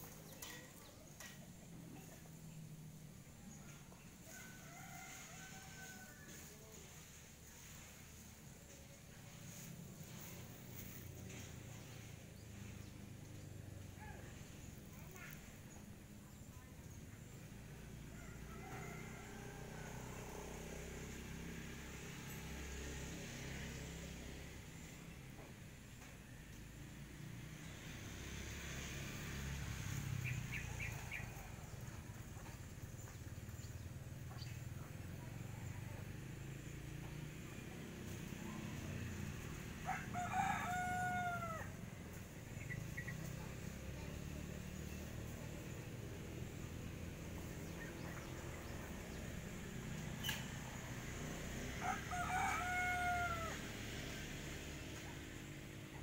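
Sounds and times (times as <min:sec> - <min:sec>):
low outdoor rumble: 0:00.0 - 0:56.0
rooster crowing: 0:04.2 - 0:06.6, 0:18.1 - 0:21.5, 0:39.8 - 0:41.9, 0:51.2 - 0:54.0.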